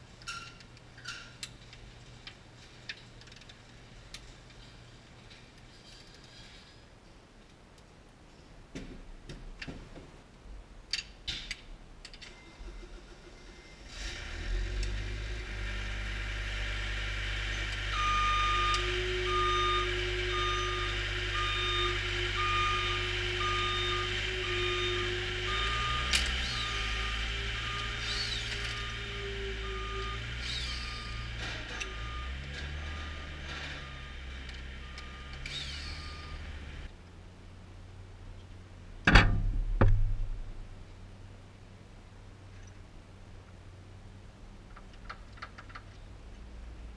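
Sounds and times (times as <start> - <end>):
vehicle engine rumbling: 12.4 - 46.9
reversing alarm beeping: 17.5 - 36.7.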